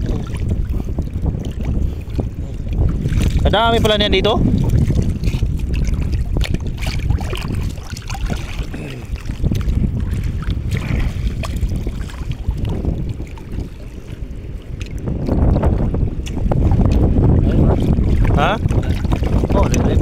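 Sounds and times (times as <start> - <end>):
water splashing: 0.0 - 20.0
wind rumbling on microphone: 0.0 - 20.0.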